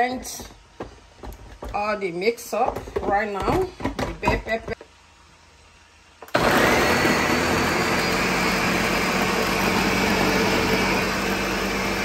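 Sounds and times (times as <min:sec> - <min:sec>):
blender motor running: 0:06.3 - 0:12.0.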